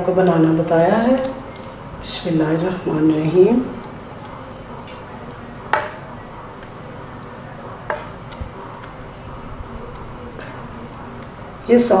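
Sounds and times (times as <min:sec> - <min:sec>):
spatula tapping on pan: 0:05.7 - 0:06.0, 0:07.9 - 0:09.0.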